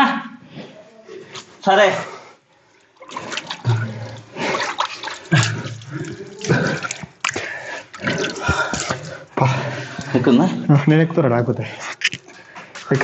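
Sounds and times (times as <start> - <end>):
water sloshing and splashing: 1.2 - 10.7.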